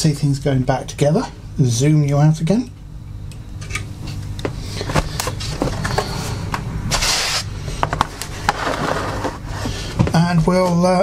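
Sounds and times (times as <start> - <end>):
plastic scraping on desk: 8.0 - 9.7.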